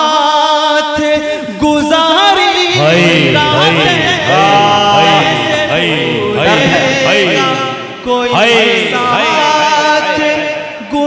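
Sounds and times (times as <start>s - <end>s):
man singing melismatic phrases: 1.2s - 11.0s.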